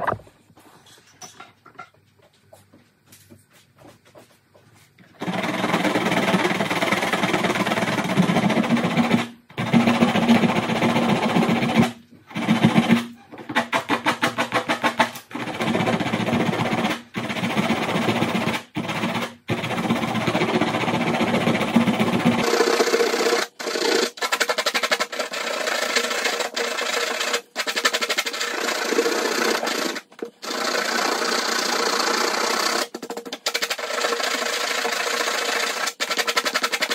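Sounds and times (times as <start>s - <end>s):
sandpaper rasping on plastic: 22.4s - 36.9s.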